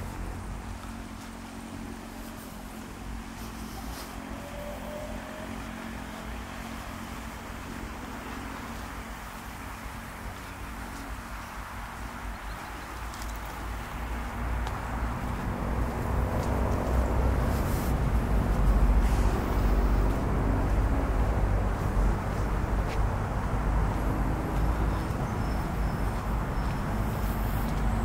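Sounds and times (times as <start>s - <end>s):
road traffic rumble: 0.0s - 28.0s.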